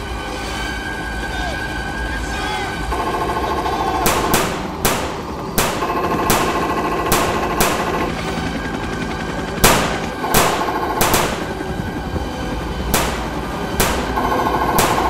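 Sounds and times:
machine-gun fire rattle: 2.9s - 11.9s, 12.9s - 15.0s
sharp gunshots cracking: 4.0s - 8.3s, 9.6s - 11.8s, 12.9s - 15.0s.

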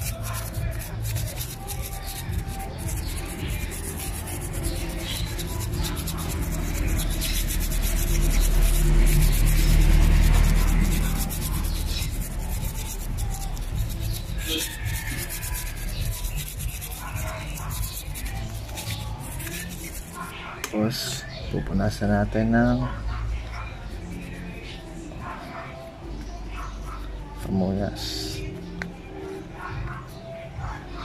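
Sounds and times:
toothbrush scrubbing metal: 0.0s - 20.6s, 23.8s - 25.8s.

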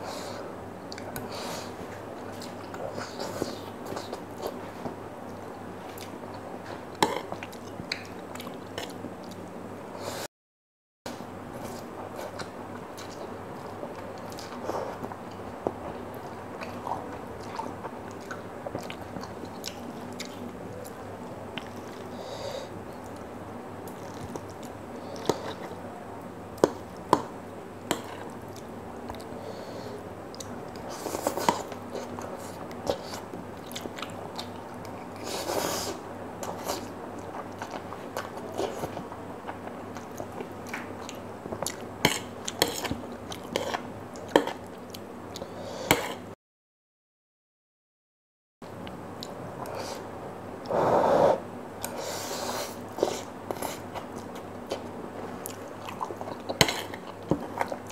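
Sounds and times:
person chewing and slurping noodles: 0.0s - 9.4s, 11.6s - 21.0s, 27.9s - 46.2s, 49.2s - 57.9s.

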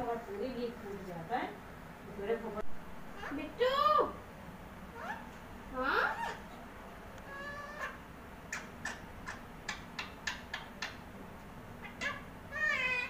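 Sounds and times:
parakeet calling: 3.1s - 3.6s, 4.9s - 6.6s, 7.2s - 11.1s, 11.8s - 13.0s
parakeet chirps: 7.3s - 11.1s.

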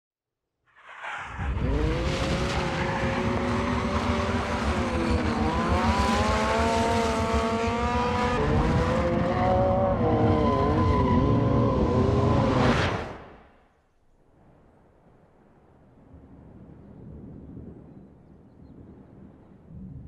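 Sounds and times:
motorcycle engine at high revs: 1.6s - 12.7s.

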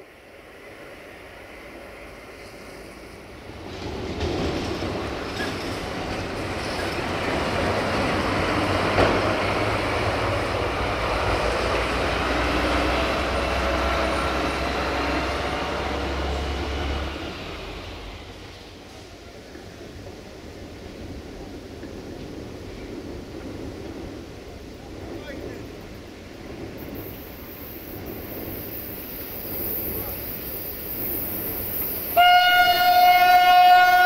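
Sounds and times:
heavy diesel vehicle passing: 7.0s - 18.8s.

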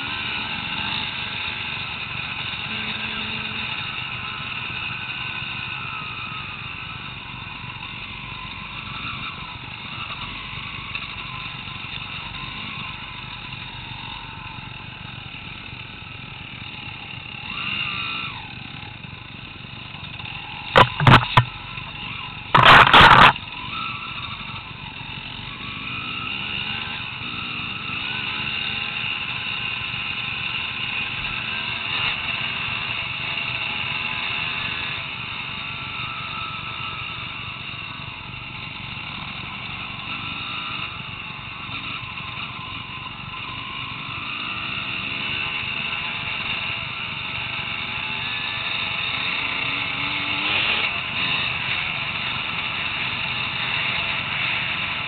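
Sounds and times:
dirt bike engines revving: 0.0s - 55.0s.

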